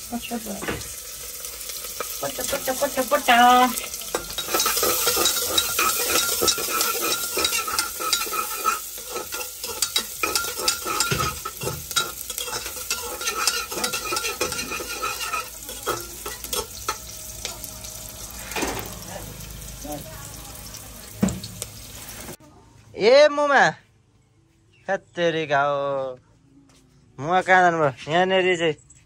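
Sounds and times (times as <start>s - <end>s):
food sizzling in a pan: 0.0s - 22.4s
utensil scraping a pan: 1.7s - 19.6s.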